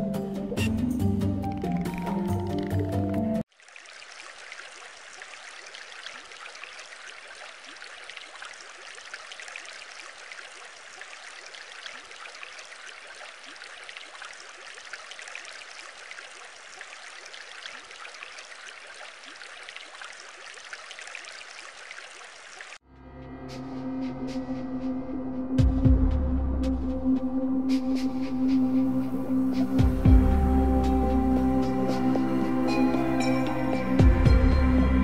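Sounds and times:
music: 0.0 - 3.4, 22.9 - 35.0
trickling splashing water: 1.4 - 22.8.

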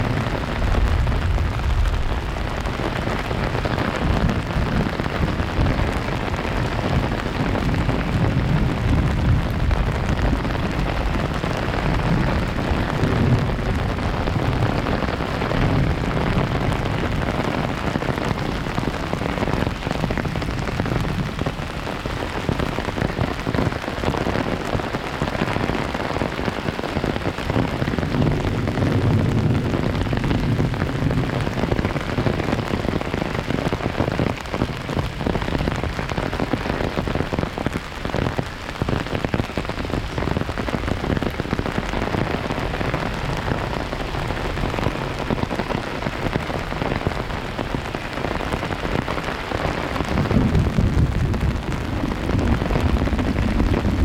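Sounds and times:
deep low rumble: 0.0 - 4.9, 50.2 - 54.0
heavy rain on umbrella: 0.0 - 54.0.

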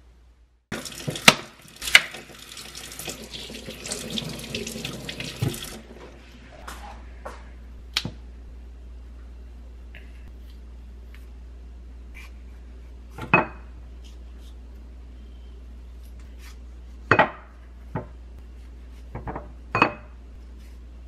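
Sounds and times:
tap water splashing: 0.7 - 5.8.

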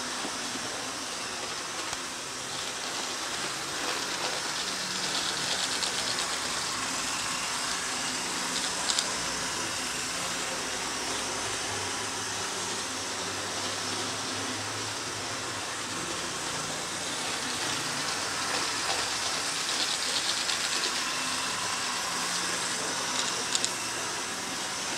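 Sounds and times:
model train motors whirring: 0.0 - 24.9
wheels rolling on rails: 0.2 - 7.1.

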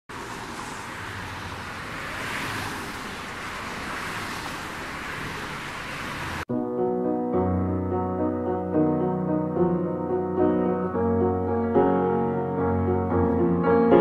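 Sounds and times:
car road and wind noise: 0.1 - 6.5.

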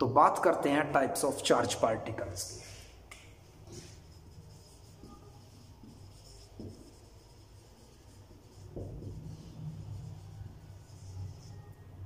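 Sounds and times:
marker scratching on whiteboard: 2.4 - 12.0.

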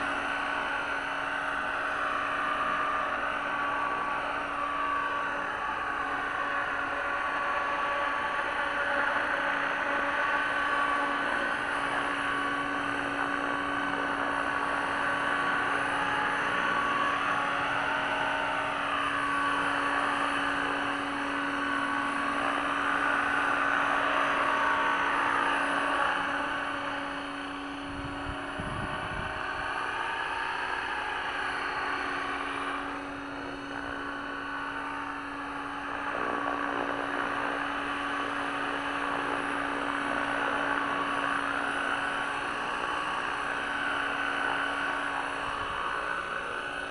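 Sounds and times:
rc helicopter whining: 0.0 - 46.9.

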